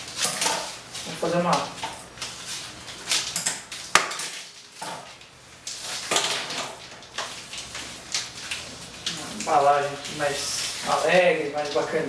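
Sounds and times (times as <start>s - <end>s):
gift ribbon rustling: 7.4s - 12.0s.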